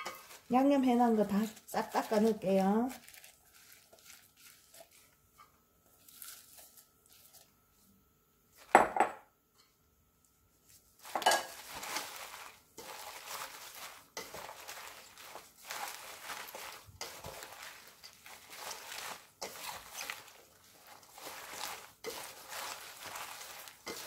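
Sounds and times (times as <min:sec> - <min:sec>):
wet rustling of cabbage leaves: 0:00.0 - 0:05.3, 0:05.9 - 0:07.5, 0:10.6 - 0:24.0
plastic glove crinkling: 0:00.0 - 0:07.8, 0:10.5 - 0:24.0
dishes clinking: 0:11.1 - 0:11.6.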